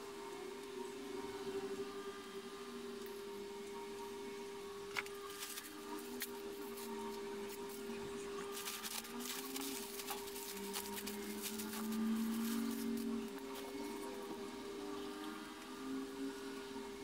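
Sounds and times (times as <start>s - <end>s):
steady hum: 0.0s - 17.0s
plastic bags crinkling: 5.0s - 7.8s, 8.5s - 13.1s.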